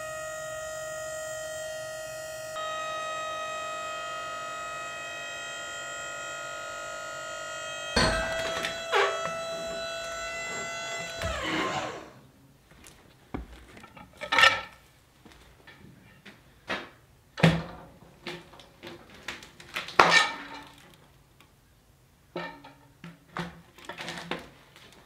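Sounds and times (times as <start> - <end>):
sharp knocks: 8.0 - 11.8.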